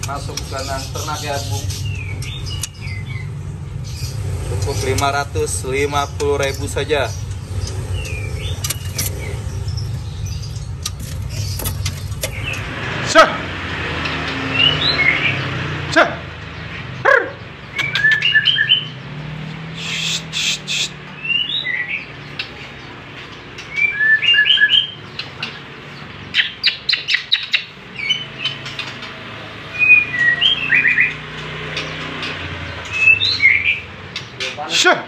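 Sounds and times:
bird whistling song: 0.3 - 4.2, 7.2 - 12.7, 14.4 - 15.5, 17.7 - 22.5, 23.6 - 25.4, 26.3 - 29.0, 29.7 - 31.4, 32.5 - 34.0
bird rapid clicks: 2.1 - 2.8, 17.7 - 18.4.

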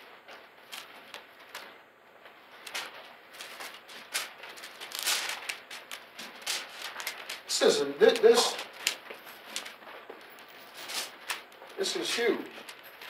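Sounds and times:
thin pages rustling: 0.3 - 13.0.

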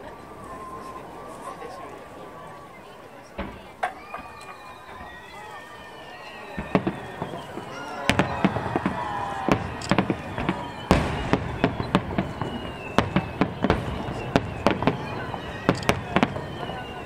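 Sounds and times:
firework shells bursting: 6.6 - 17.0.

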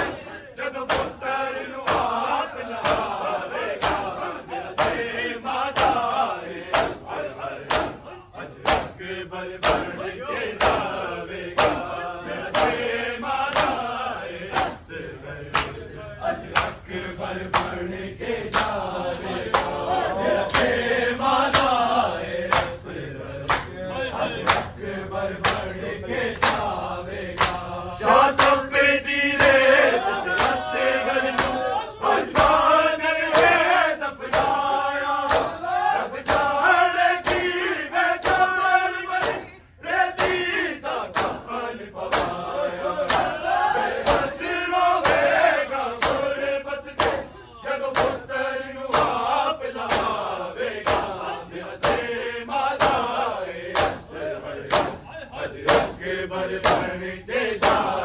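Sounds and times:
men chanting a lament: 0.0 - 58.0
hands slapping chests: 0.8 - 1.2, 1.9 - 2.2, 2.8 - 3.2, 3.8 - 4.2, 4.8 - 5.0, 5.7 - 6.1, 6.7 - 7.0, 7.6 - 9.0, 9.6 - 10.0, 10.6 - 11.0, 11.6 - 11.9, 13.5 - 13.8, 15.5 - 15.9, 16.5 - 16.8, 17.5 - 17.8, 18.5 - 18.8, 20.5 - 20.8, 21.4 - 21.8, 22.5 - 22.8, 23.5 - 23.8, 24.4 - 24.8, 25.4 - 26.7, 27.3 - 27.7, 29.4 - 29.7, 30.3 - 30.7, 31.3 - 31.6, 34.2 - 34.6, 35.2 - 35.6, 36.2 - 36.6, 37.2 - 37.6, 38.2 - 38.5, 41.1 - 41.5, 42.1 - 42.4, 43.0 - 43.4, 44.0 - 44.4, 45.0 - 45.4, 46.0 - 47.3, 47.9 - 48.3, 49.8 - 51.2, 51.8 - 52.1, 52.8 - 53.2, 53.8 - 54.1, 54.7 - 55.0, 55.6 - 56.0, 56.6 - 56.9, 57.6 - 58.0.

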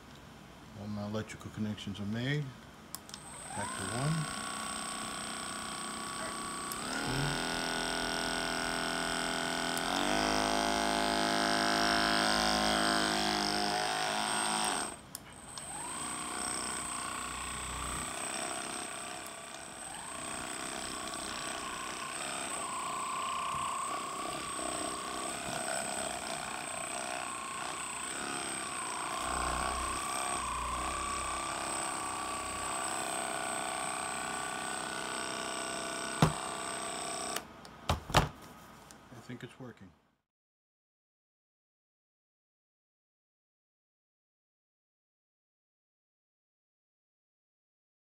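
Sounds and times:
massage gun motor running: 3.1 - 37.5.

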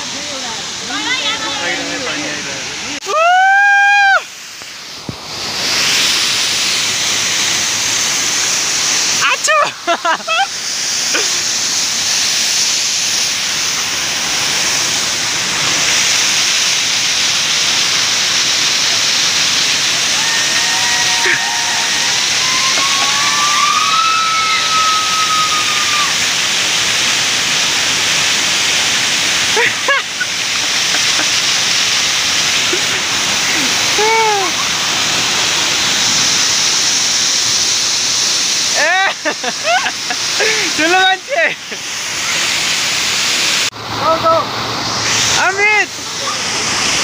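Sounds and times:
waterfall rushing: 0.0 - 47.0
person calling: 20.0 - 26.1, 33.6 - 34.7.

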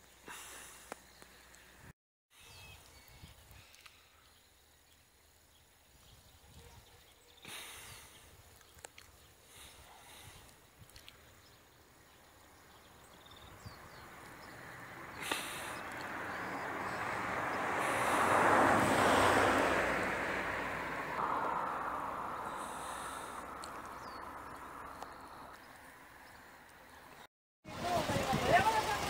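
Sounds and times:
vehicle passing by: 12.5 - 29.0.

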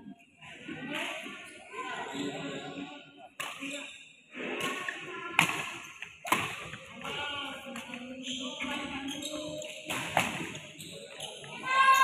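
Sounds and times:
racket hitting shuttlecock: 4.6 - 7.2, 9.9 - 10.6.

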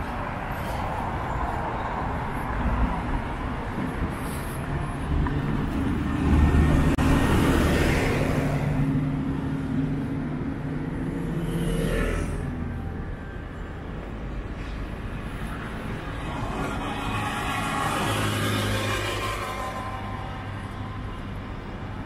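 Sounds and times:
steady traffic noise: 0.0 - 22.0
vehicle passing close by: 5.2 - 12.6.

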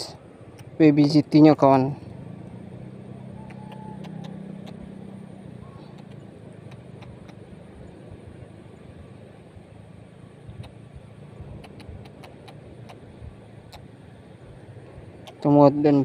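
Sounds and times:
distant engine hum: 0.0 - 16.0
outdoor noise: 0.0 - 16.0
light clicks: 11.6 - 13.0.

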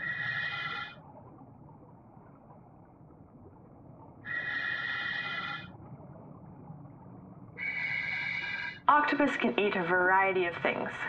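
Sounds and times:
low underwater background: 0.0 - 11.0
diver breathing through regulator: 7.6 - 8.8.

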